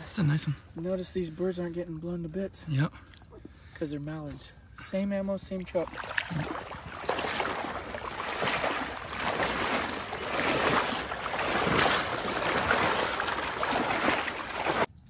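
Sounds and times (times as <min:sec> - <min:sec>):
water sloshing from wading: 0:05.5 - 0:14.9.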